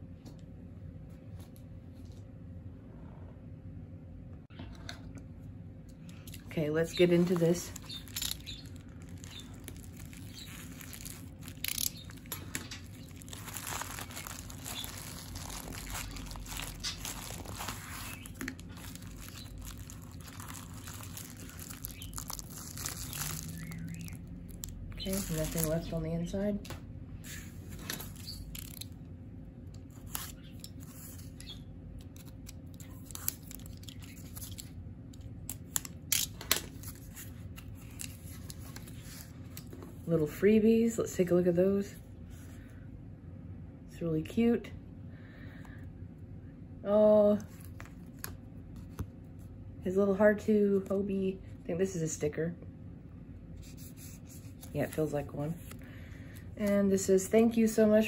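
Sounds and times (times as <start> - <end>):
bubble mailer crinkling: 6.3 - 26.1, 27.3 - 29.0, 29.8 - 40.1.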